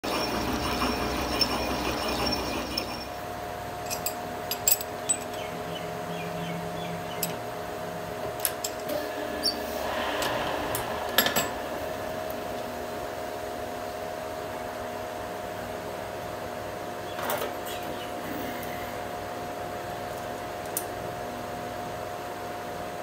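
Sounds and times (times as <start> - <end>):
lathe running: 0.0 - 4.0
faint steady hum: 0.1 - 23.0.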